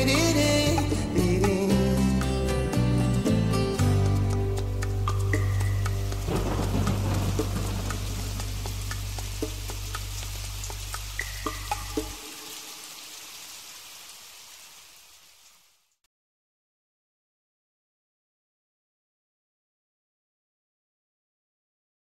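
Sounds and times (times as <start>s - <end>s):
rain-like hiss: 3.6s - 16.1s.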